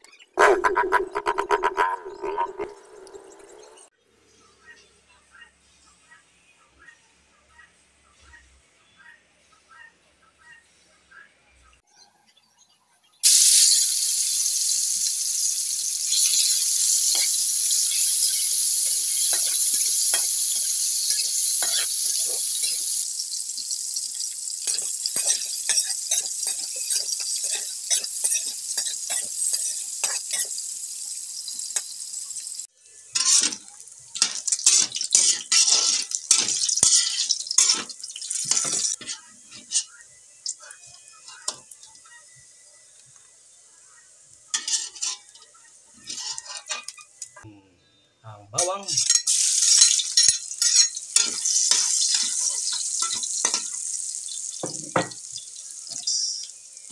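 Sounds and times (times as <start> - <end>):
meat sizzling in hot oil: 13.2 - 43.0, 48.9 - 56.9
metal spatula scraping wok: 16.1 - 30.6, 33.1 - 40.0, 44.5 - 47.1, 49.0 - 54.0.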